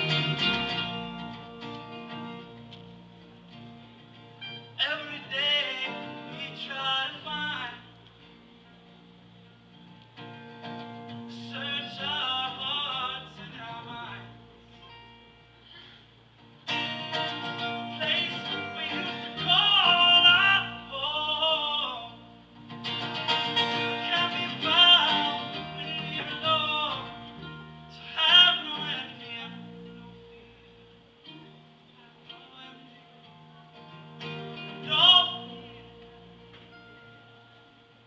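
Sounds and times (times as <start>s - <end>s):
acoustic guitars playing: 0.0s - 38.0s
person singing: 17.8s - 22.2s, 23.8s - 30.4s, 31.3s - 37.0s.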